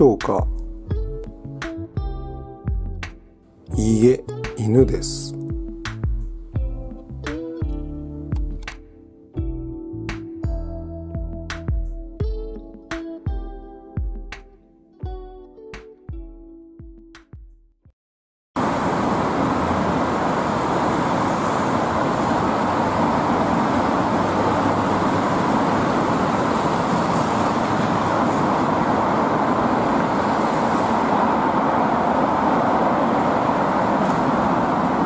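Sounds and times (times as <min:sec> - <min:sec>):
city road traffic: 0:00.0 - 0:06.1, 0:18.6 - 0:35.0.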